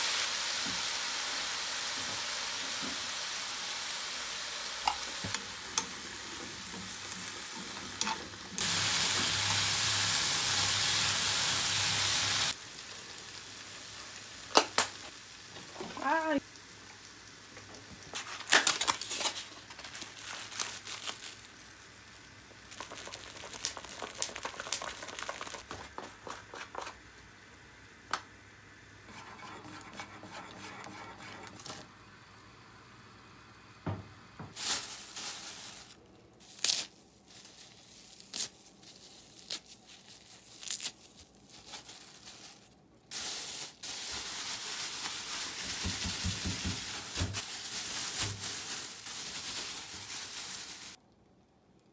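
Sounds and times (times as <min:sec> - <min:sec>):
steady hiss: 0:00.0 - 0:18.1
packaging crinkling and tearing: 0:18.1 - 0:21.9, 0:22.6 - 0:25.9, 0:34.6 - 0:51.0.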